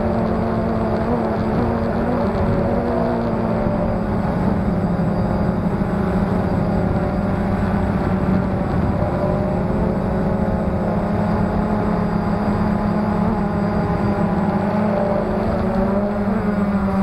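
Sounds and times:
quadcopter propellers buzzing: 0.0s - 17.0s.

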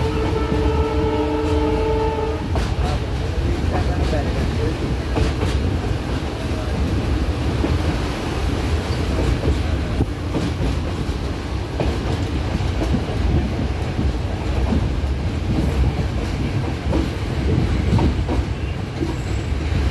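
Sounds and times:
train low rumble: 0.0s - 19.9s.

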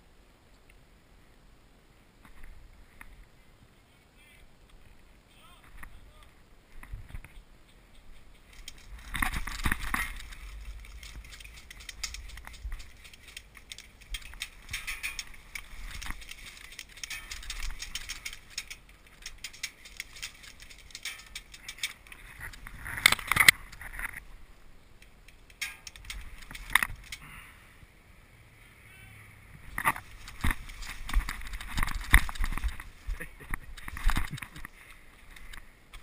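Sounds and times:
brush and dry leaves rustling: 2.0s - 27.6s, 29.6s - 36.0s
carried gear rattling: 8.4s - 24.2s, 25.0s - 27.3s, 29.8s - 36.0s.

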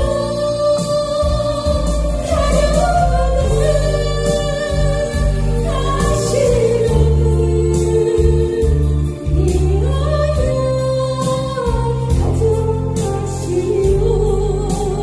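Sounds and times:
music accompaniment with bass: 0.0s - 15.0s
woman singing into a microphone: 0.0s - 15.0s.

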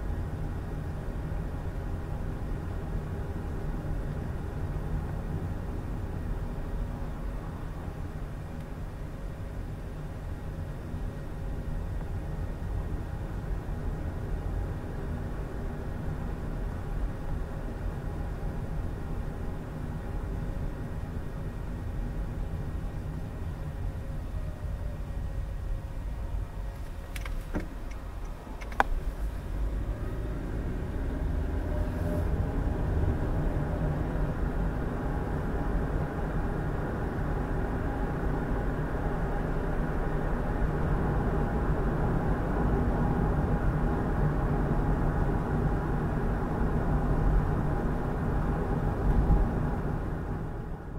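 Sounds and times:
car engine and road noise: 0.0s - 50.9s.

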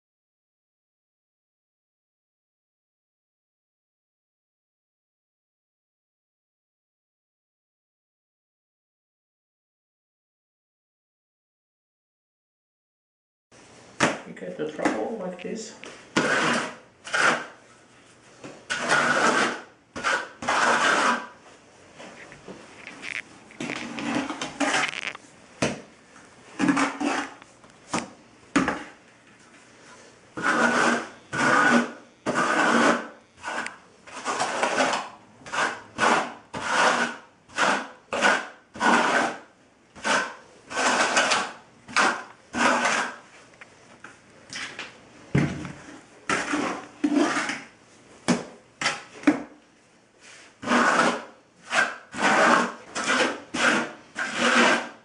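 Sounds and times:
trowel scraping floor: 15.8s - 49.6s, 50.2s - 55.0s.

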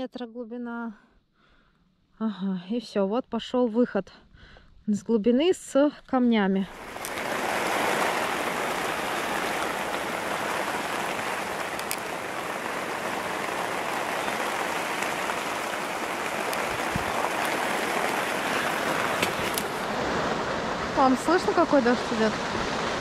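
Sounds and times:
rain pattering on a tent: 6.7s - 20.4s.

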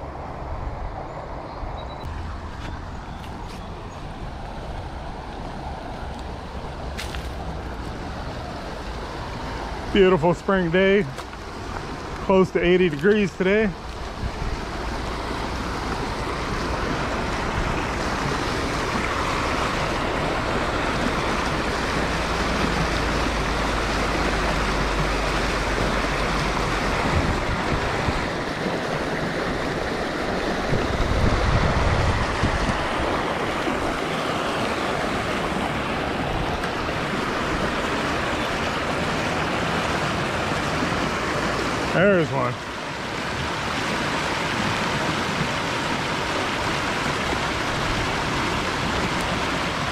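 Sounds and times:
creek water rushing over rocks: 2.1s - 49.9s
wind buffeting microphone: 13.8s - 41.0s.

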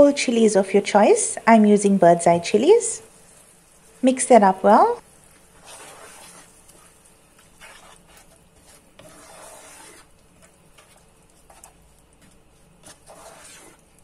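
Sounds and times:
wooden spoon scraping a pot: 5.2s - 14.0s.

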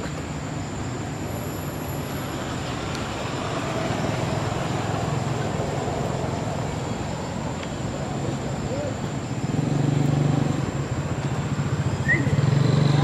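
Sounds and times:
traffic rumble: 0.0s - 13.0s
vehicle passing: 1.5s - 13.0s.

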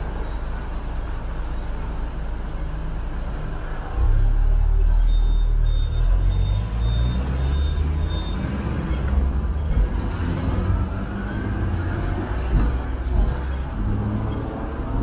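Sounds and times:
tram wheels and motors rumbling: 0.0s - 15.0s.

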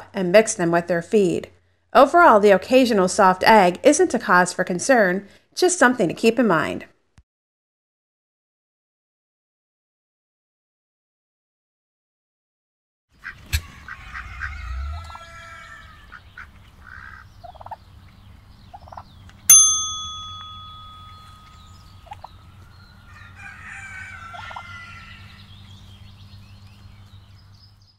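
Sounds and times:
hens clucking: 13.2s - 17.8s, 23.0s - 25.4s
bell ding: 19.5s - 22.2s.

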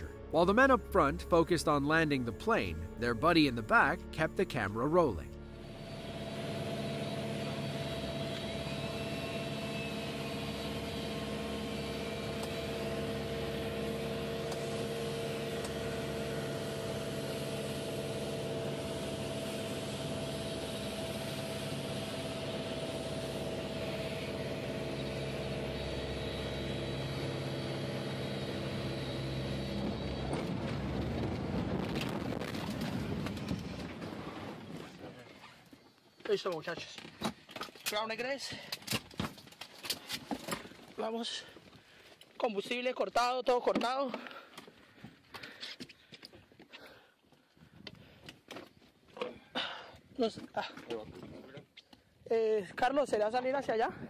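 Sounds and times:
airplane cabin drone: 0.0s - 34.6s
plane rumbling and rattling on ground: 5.7s - 35.6s.

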